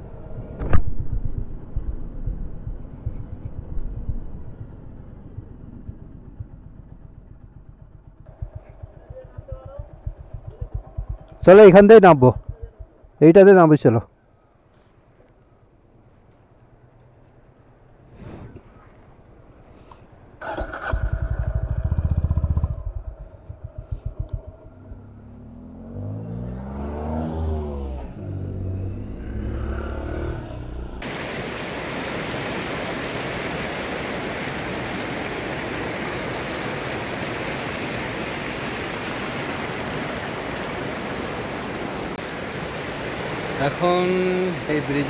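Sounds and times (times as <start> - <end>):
motorcycle engine running: 1.0 - 13.2, 20.4 - 27.1
vehicle passing: 20.4 - 31.6
river rushing: 31.0 - 45.0.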